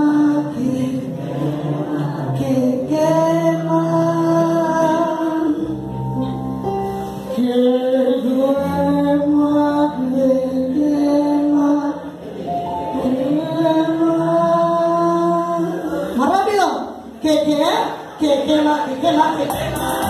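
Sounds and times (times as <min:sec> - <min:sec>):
electronic keyboard chords: 0:19.0 - 0:20.0
bass line: 0:19.4 - 0:20.0.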